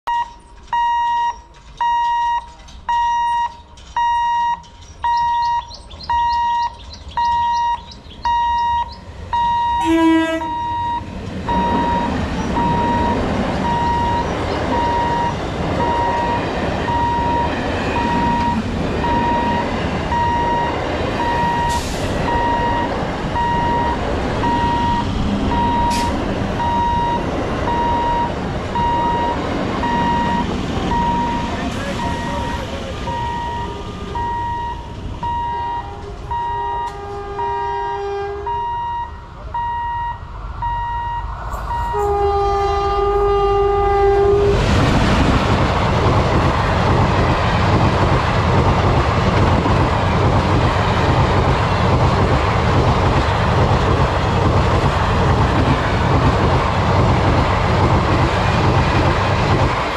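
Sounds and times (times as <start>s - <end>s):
level crossing warning beeps: 0.1s - 37.6s, 38.5s - 42.1s
train wheels rumbling on rails: 0.1s - 59.9s
train horn blast: 9.4s - 12.0s, 35.4s - 39.2s, 41.6s - 44.7s.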